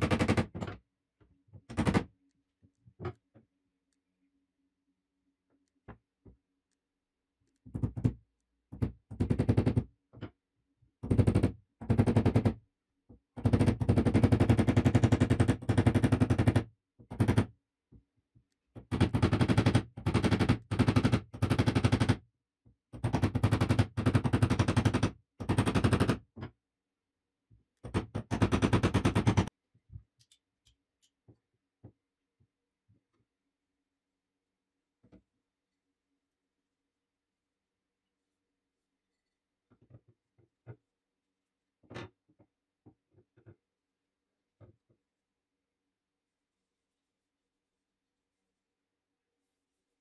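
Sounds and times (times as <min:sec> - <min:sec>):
rapid hammer strikes: 0:18.9 - 0:22.2, 0:27.9 - 0:29.5.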